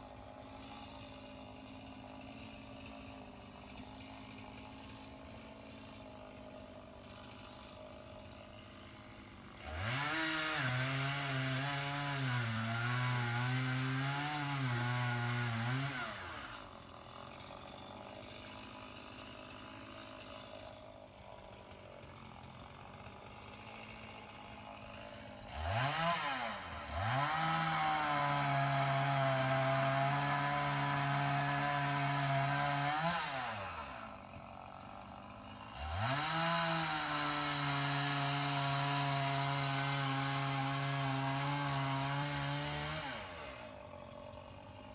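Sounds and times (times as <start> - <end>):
small motor whining: 29.1 - 35.1.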